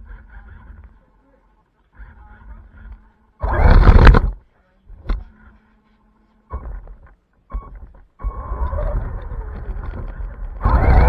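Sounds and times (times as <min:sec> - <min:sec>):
rc car motor and tyre rush: 0:02.5 - 0:04.4, 0:08.2 - 0:11.0.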